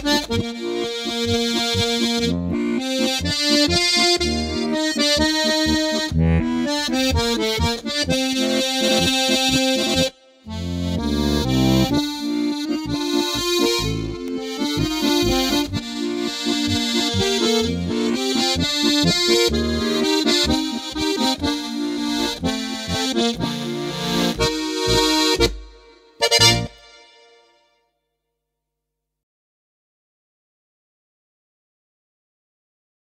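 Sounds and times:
button accordion playing a march: 0.0s - 27.6s.

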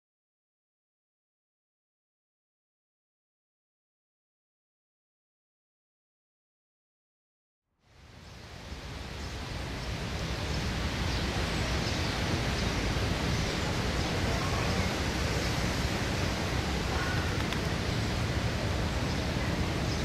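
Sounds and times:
outdoor background hiss: 7.8s - 20.0s.

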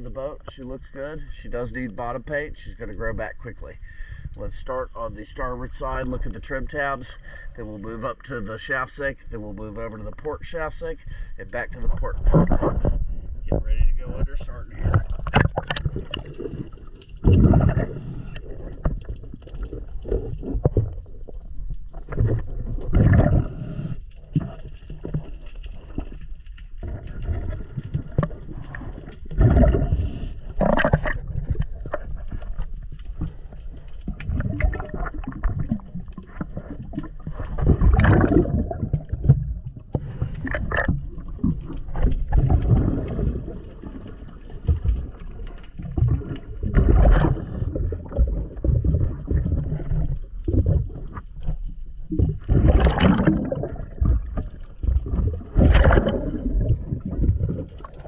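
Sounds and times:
diver exhaling bubbles: 14.8s - 21.0s, 22.1s - 24.6s, 26.8s - 32.0s, 34.3s - 45.1s, 45.9s - 51.1s, 52.2s - 58.0s
rushing breath through regulator: 23.2s - 24.1s, 29.8s - 30.6s, 42.8s - 43.6s.

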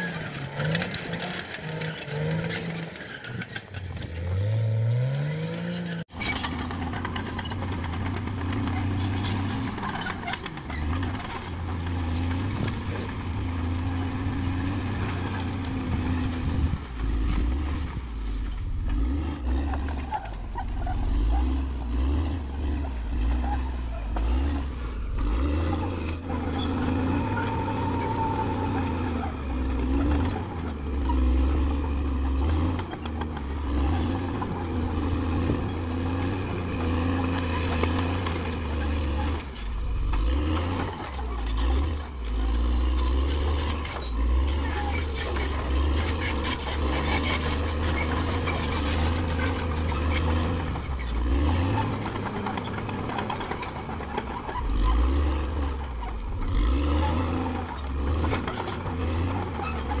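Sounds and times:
bulldozer diesel engine droning: 0.0s - 60.0s.

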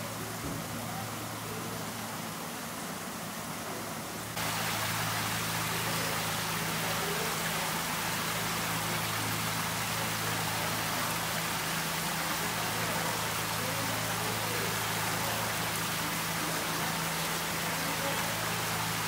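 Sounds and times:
water streams splashing into tank: 4.3s - 19.0s.

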